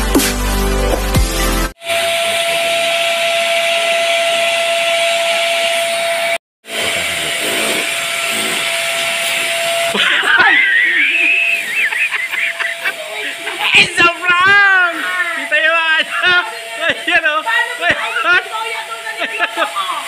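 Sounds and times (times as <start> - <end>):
steady hiss: 9.2 - 20.0
faint hum: 9.5 - 20.0
woman shrieking and laughing: 9.9 - 20.0.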